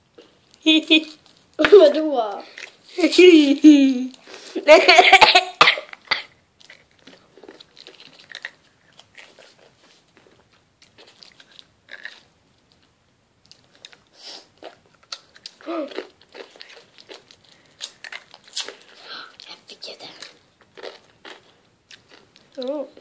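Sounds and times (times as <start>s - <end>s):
person chewing crunchy chocolate: 6.1s - 22.8s.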